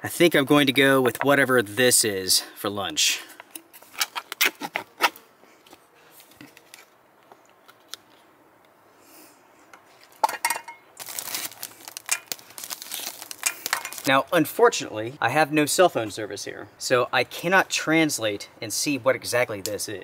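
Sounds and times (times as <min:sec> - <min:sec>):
rustling: 0:09.8 - 0:14.1.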